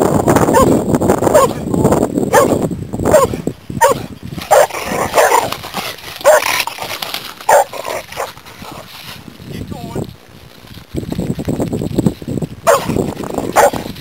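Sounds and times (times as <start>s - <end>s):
dogs barking while play-fighting: 0.4s - 1.6s, 2.3s - 8.9s, 12.6s - 14.0s.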